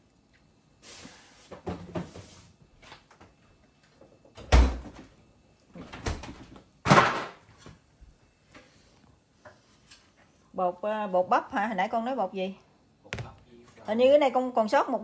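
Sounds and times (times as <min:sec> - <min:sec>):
kitchen knocks and clatters: 0:05.8 - 0:07.6.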